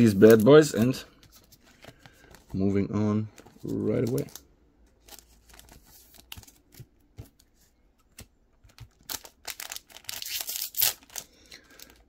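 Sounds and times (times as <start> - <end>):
crinkling plastic packaging: 3.3 - 7.4, 8.6 - 12.0.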